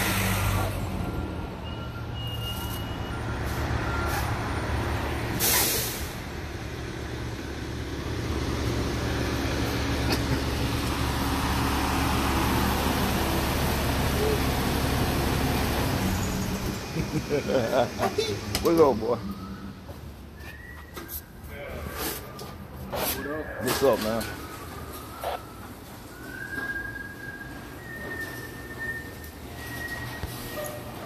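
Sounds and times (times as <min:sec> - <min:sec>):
diesel engine running: 0:03.2 - 0:20.0
air brake hiss: 0:05.4 - 0:06.2.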